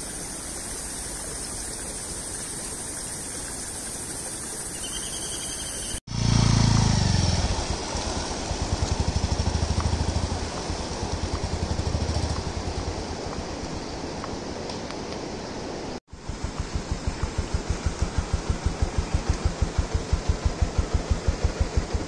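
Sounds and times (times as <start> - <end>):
motorcycle engine revving: 6.0 - 13.1, 16.2 - 22.0.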